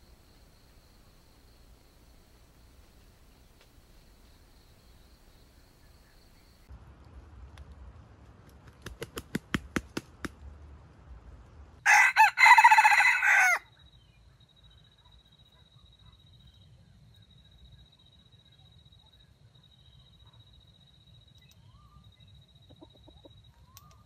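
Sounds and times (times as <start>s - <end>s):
rooster crowing: 11.8s - 13.7s.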